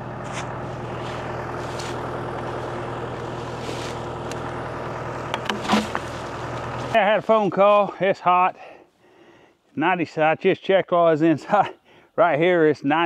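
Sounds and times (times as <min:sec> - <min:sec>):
engine idling: 0:00.0 - 0:09.5.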